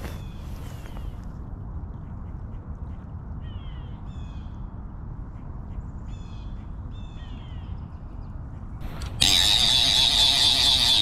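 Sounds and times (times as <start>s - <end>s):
bird calling: 8.8s - 11.0s.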